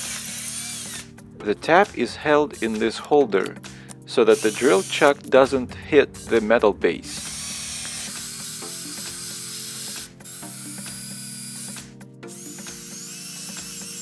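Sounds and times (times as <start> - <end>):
cordless drill tapping metal: 4.3 - 5.3, 7.1 - 14.0.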